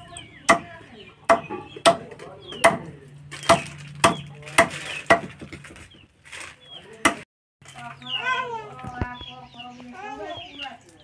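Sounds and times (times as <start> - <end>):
hatchet chopping on wooden block: 0.5 - 0.7, 1.3 - 2.9, 3.5 - 5.3.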